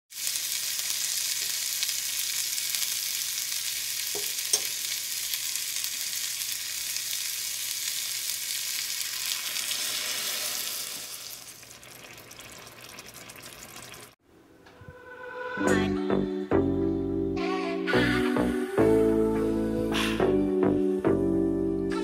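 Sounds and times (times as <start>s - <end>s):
food sizzling in hot oil: 0.1s - 14.2s.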